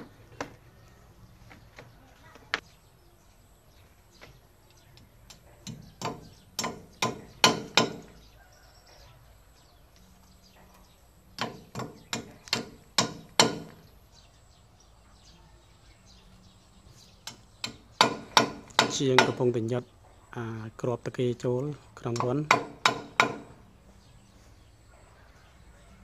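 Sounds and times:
sharp knocks: 0:05.3 - 0:08.2, 0:11.4 - 0:13.8, 0:17.3 - 0:19.5, 0:22.1 - 0:23.6.

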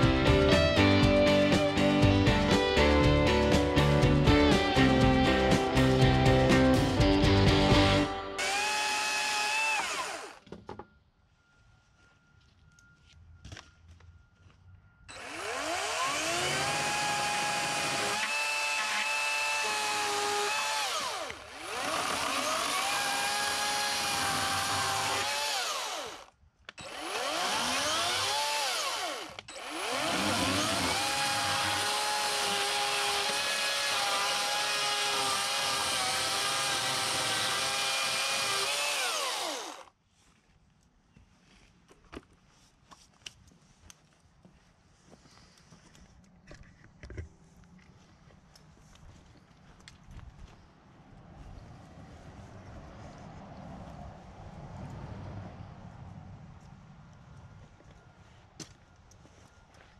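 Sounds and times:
electric chainsaw cutting wood: 0:04.3 - 0:10.4, 0:15.1 - 0:39.9.

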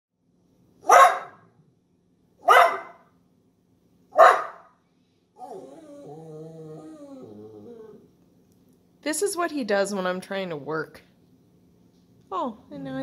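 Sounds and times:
dog barking: 0:00.8 - 0:01.5, 0:02.4 - 0:03.1, 0:04.1 - 0:04.8.

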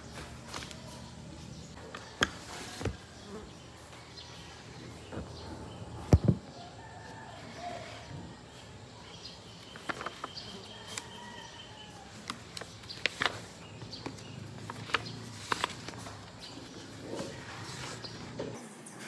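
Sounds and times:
paper flipping and shuffling: 0:00.0 - 0:03.1, 0:09.4 - 0:18.4.

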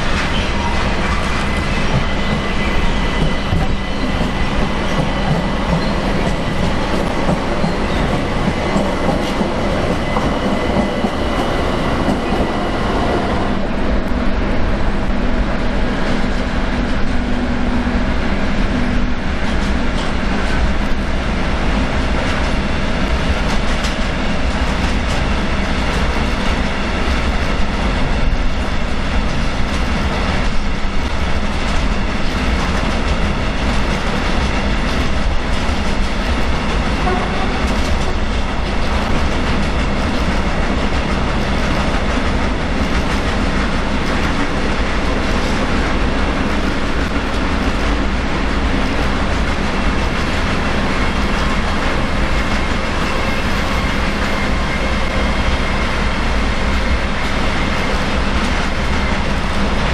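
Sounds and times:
train wheels on rails: 0:00.0 - 0:59.9.

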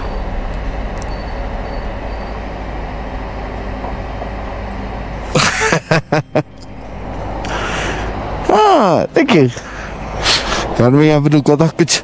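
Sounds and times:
wind and road rush: 0:00.0 - 0:12.0.

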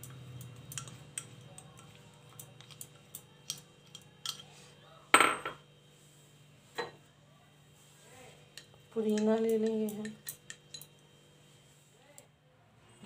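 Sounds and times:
spoon clatter: 0:00.0 - 0:04.5, 0:08.5 - 0:11.0.

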